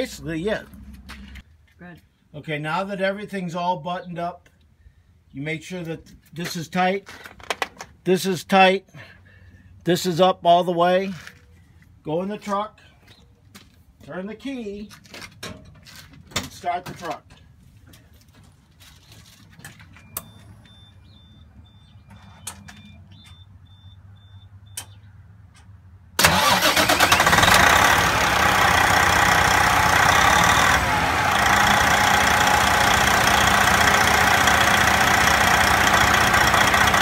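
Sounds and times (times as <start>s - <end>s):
faint repeating beep: 20.0s - 25.0s
truck engine starting and idling: 25.6s - 37.0s.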